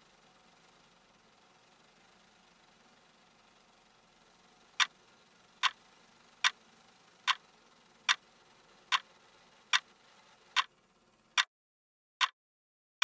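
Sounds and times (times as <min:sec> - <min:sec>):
clock ticking: 0:05.6 - 0:05.8, 0:06.4 - 0:06.6.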